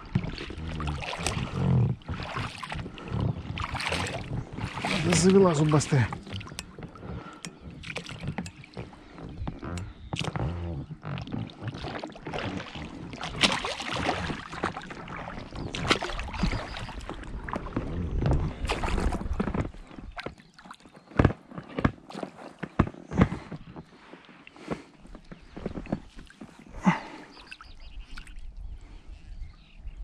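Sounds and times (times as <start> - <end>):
water splashes: 0.0 - 20.9.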